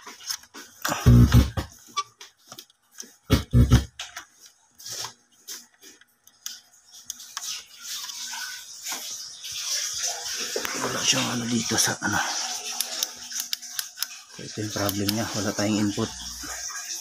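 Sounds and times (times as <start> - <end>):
plugs clicking and scraping: 0.1 - 8.2, 12.7 - 16.2.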